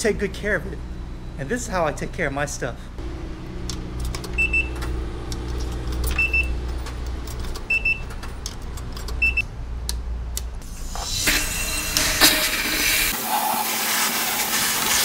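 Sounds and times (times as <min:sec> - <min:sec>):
low hum: 0:00.0 - 0:13.2
short beeps from button panel: 0:04.4 - 0:04.8
pressure washer spraying hiss: 0:10.7 - 0:15.0.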